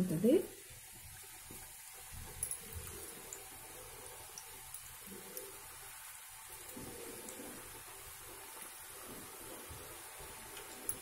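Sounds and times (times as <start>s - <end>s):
dough sizzling in hot oil: 0.0s - 11.0s.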